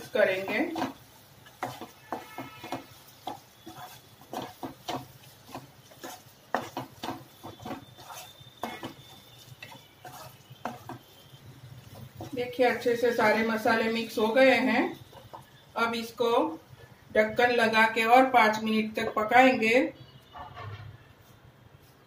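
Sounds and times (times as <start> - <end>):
spatula scraping pan: 0.0 - 15.7.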